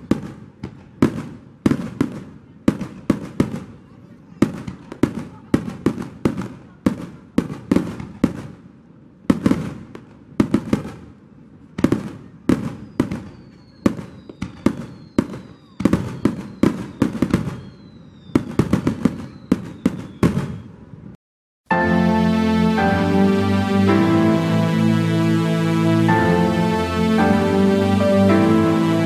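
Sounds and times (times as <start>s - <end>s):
faint falling whistles: 12.6s - 20.8s.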